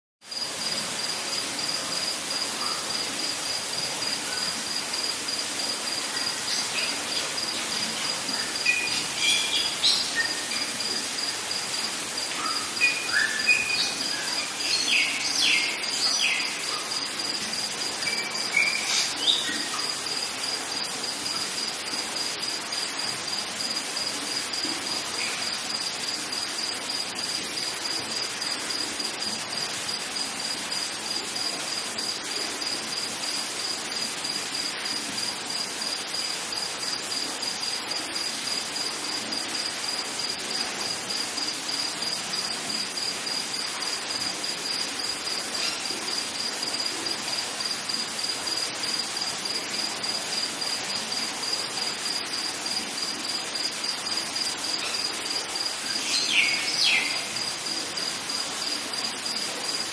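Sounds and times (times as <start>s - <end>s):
crickets chirping: 0.2s - 59.9s
rain hiss: 0.2s - 59.9s.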